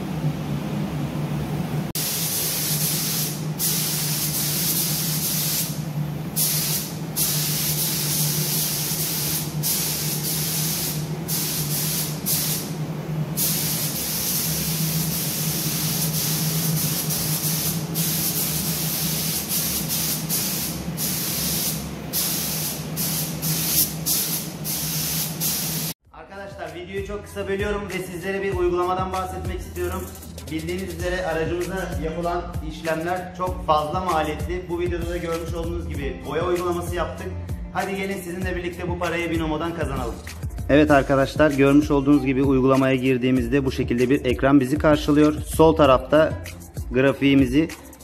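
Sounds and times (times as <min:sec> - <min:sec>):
steady low hum: 0:00.0 - 0:25.9
spray gun hissing: 0:02.0 - 0:26.0.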